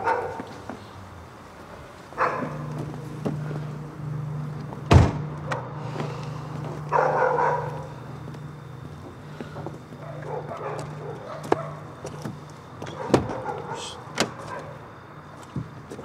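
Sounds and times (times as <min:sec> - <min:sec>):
dog barking: 0:00.0 - 0:00.6, 0:02.2 - 0:02.7, 0:06.9 - 0:08.0, 0:10.0 - 0:11.9, 0:12.9 - 0:14.8
steady low hum: 0:00.0 - 0:16.0
sharp loud thump: 0:04.9 - 0:05.3.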